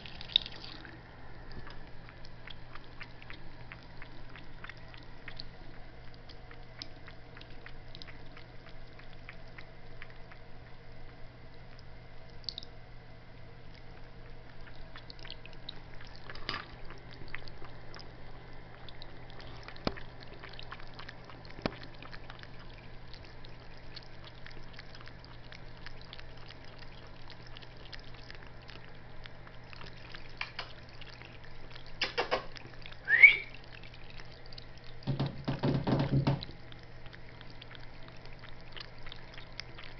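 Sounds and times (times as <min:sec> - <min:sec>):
faucet water running and splashing: 0:00.0 - 0:01.0, 0:14.6 - 0:39.9
steady low hum: 0:00.0 - 0:35.6.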